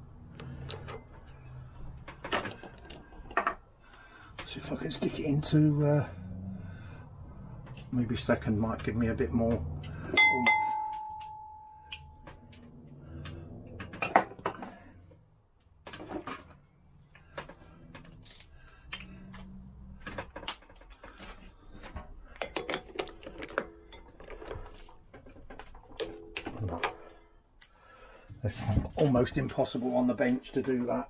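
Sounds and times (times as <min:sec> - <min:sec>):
metallic clicks of tools: 0:11.2 - 0:12.6.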